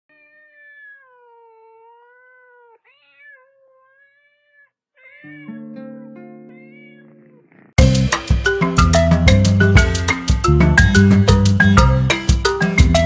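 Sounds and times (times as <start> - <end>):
cat meowing: 0.1 - 7.7.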